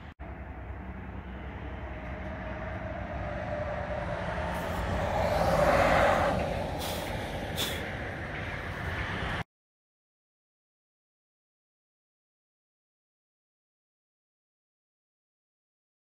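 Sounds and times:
vehicle road noise: 0.0 - 9.5.

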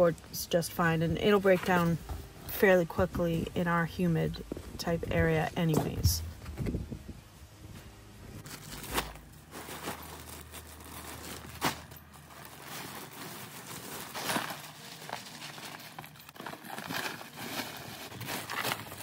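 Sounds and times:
cardboard and paper rustling: 8.4 - 19.0.

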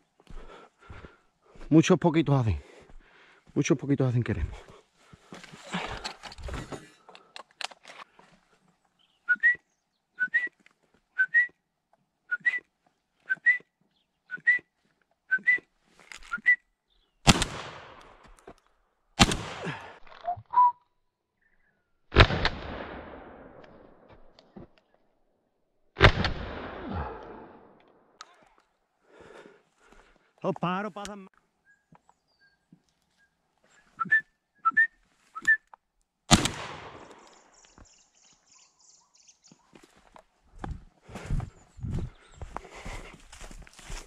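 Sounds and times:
shotgun shots: 17.2 - 18.1, 19.2 - 19.8, 22.1 - 23.6, 26.0 - 27.2, 36.3 - 37.2.

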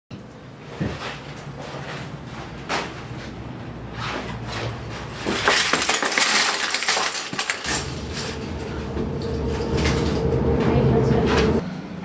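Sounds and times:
small hard items clinking: 5.2 - 8.6.

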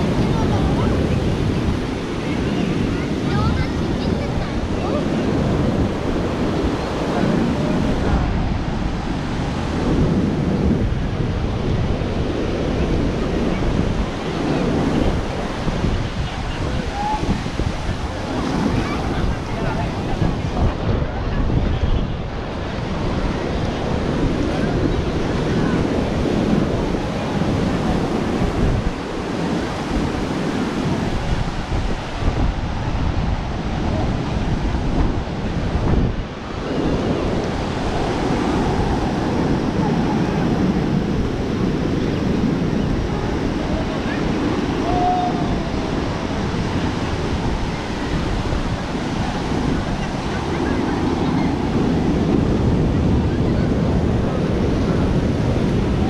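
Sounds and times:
surf washing onto beach: 0.0 - 56.0
wind buffeting microphone: 0.0 - 56.0.

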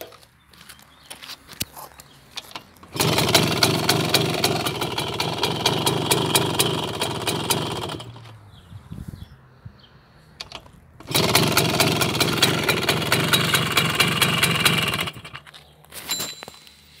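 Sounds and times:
moped engine running: 2.8 - 8.4, 10.4 - 15.5.

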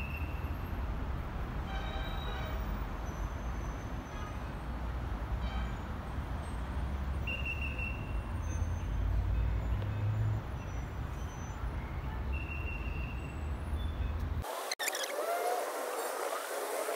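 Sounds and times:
street traffic rumble: 0.0 - 16.9
high-pitched squeals: 14.4 - 16.9.

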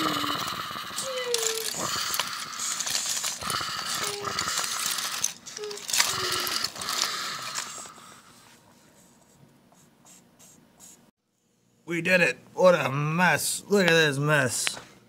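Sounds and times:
toy train cars clacking: 0.0 - 7.9
toy train motor whirring: 0.0 - 8.0.

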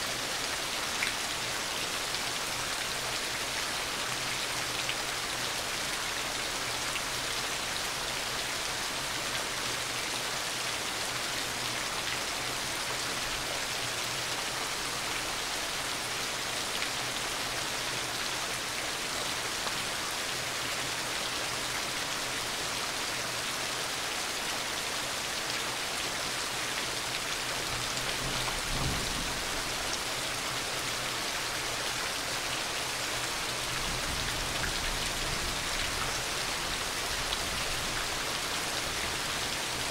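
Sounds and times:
heavy rain pouring: 0.0 - 39.9.

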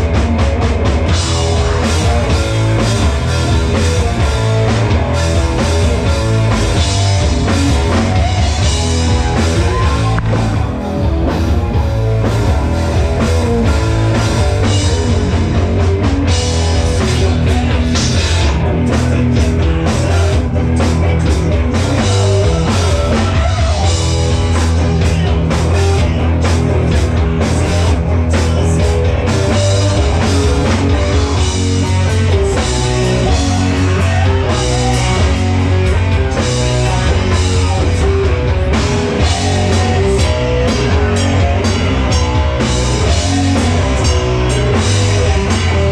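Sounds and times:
live rock band playing: 0.0 - 45.9.

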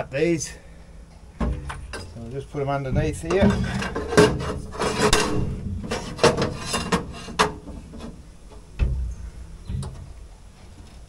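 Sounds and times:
dull thump: 1.4 - 2.2, 2.9 - 10.3.

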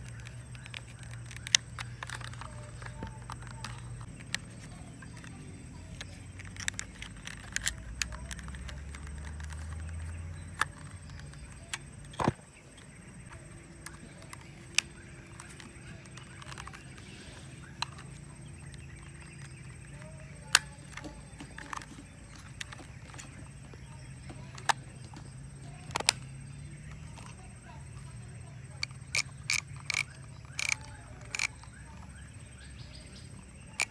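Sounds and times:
film camera plastic clicks: 0.0 - 12.3, 25.8 - 26.2, 28.8 - 32.1.

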